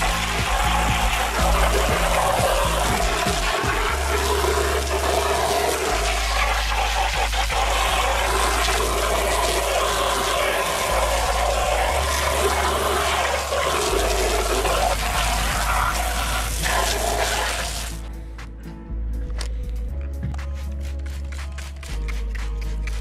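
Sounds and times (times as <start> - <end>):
pressure washer spraying water: 0.0 - 18.0.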